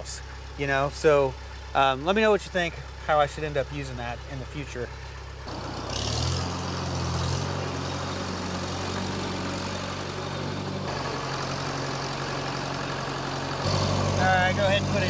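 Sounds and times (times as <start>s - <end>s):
tractor engine idling: 0.0s - 15.0s.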